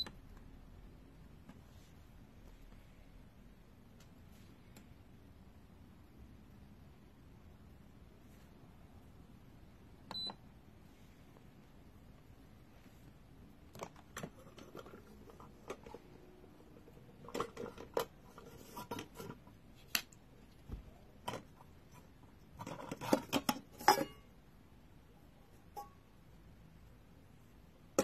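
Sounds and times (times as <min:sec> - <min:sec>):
plastic and metal parts clattering: 0:13.7 - 0:19.6.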